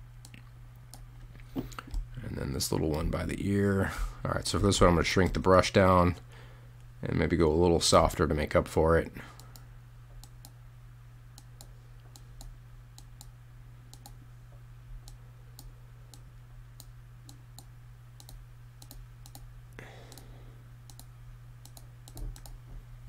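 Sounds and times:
low electrical hum: 0.0s - 23.0s
computer mouse clicking: 13.9s - 14.2s, 16.8s - 19.4s, 20.9s - 22.6s.

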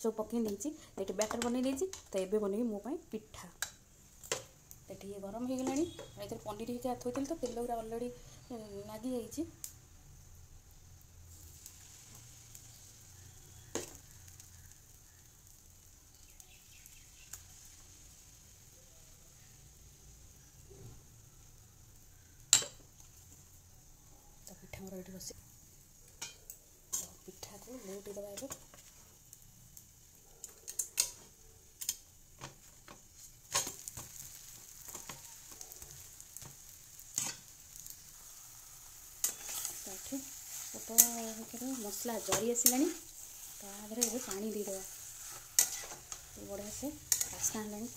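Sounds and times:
batter sizzling on hot griddle: 0.0s - 47.9s
metal spatula scraping pan: 5.6s - 6.2s, 37.1s - 37.5s, 39.2s - 47.9s.

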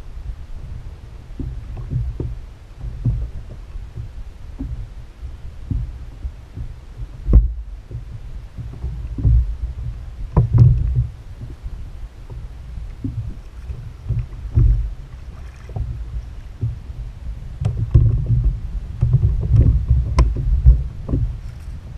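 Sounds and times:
water slapping against kayak hull: 1.3s - 21.9s.

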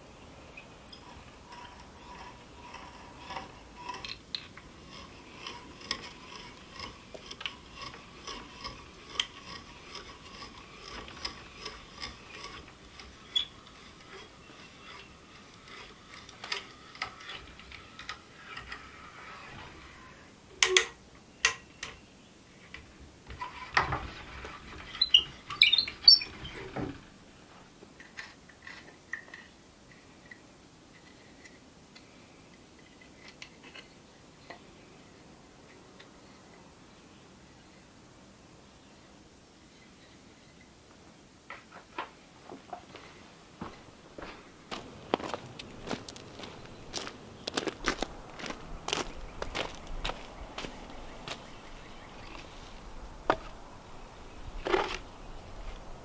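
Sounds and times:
hand brace drilling wood: 0.0s - 20.3s.

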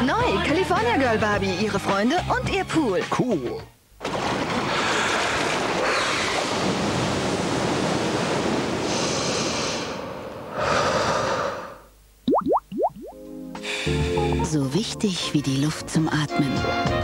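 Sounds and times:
wind: 4.0s - 11.9s.

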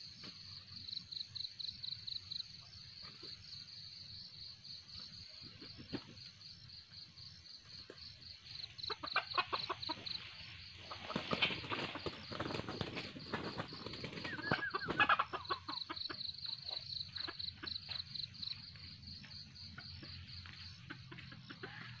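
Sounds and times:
crickets chirping: 0.0s - 22.0s
rooster flapping wings: 10.9s - 15.6s.

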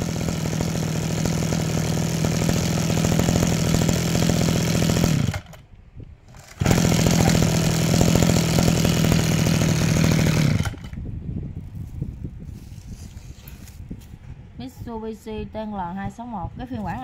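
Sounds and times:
brush-cutter engine running: 0.0s - 5.7s, 6.3s - 11.0s.

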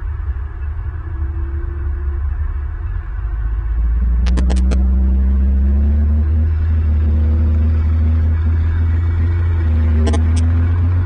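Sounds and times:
faint rising hum: 0.0s - 11.0s
low engine-like rumble: 0.0s - 11.0s
sharp clicks: 4.2s - 4.8s, 10.0s - 10.5s.

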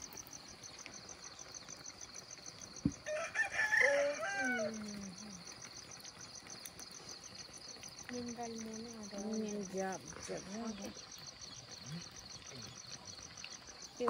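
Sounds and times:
insects chirping: 0.0s - 14.0s
rooster crowing: 3.0s - 4.9s.

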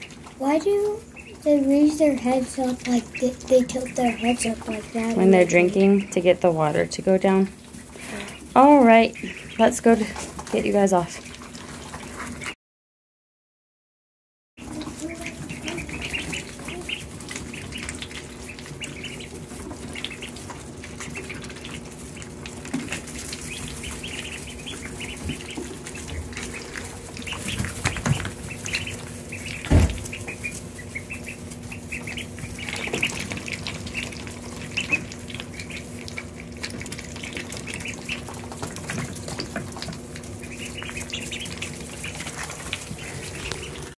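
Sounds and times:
ducklings peeping: 0.0s - 12.6s, 14.6s - 44.0s
faint steady hum: 14.6s - 44.0s
sharp thump: 29.7s - 30.1s.

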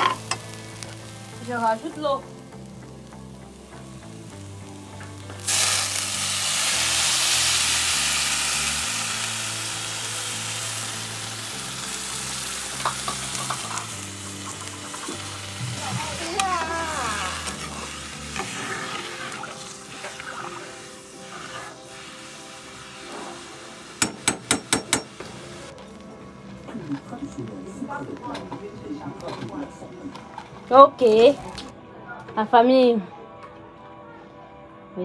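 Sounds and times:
hot pot hissing and sizzling: 0.0s - 25.8s
metal spoon scraping a pot: 17.4s - 20.6s.

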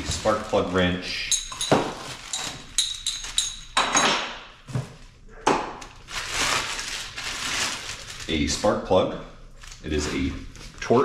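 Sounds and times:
plastic bag crinkling: 0.0s - 3.7s, 5.9s - 8.8s, 9.5s - 11.0s.

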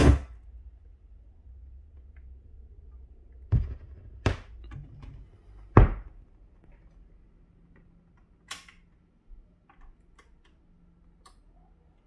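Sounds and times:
low hum: 0.0s - 8.4s.

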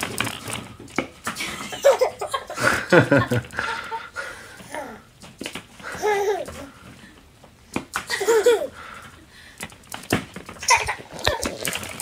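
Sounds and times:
plastic balls clattering: 0.0s - 1.6s, 9.6s - 12.0s
high-pitched squealing laugh: 10.6s - 11.7s.

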